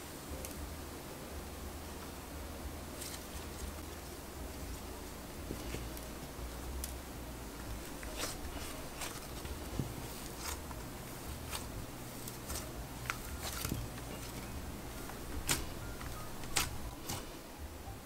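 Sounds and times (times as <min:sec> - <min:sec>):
hands squishing slime: 0:04.6 - 0:06.1, 0:07.6 - 0:17.3
slime crackles and clicks: 0:07.8 - 0:17.3.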